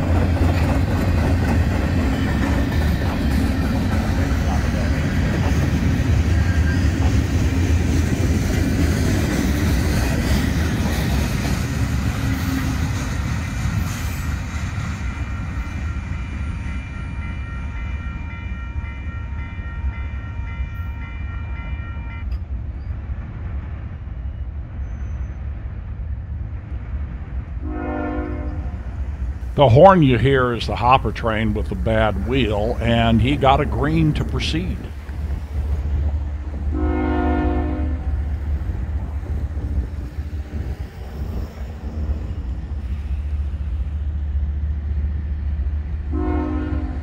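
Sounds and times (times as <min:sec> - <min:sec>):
freight cars rumbling past: 0:00.0 - 0:17.2, 0:28.2 - 0:47.0
locomotive air horn: 0:27.6 - 0:28.8, 0:36.7 - 0:38.2, 0:46.1 - 0:47.0.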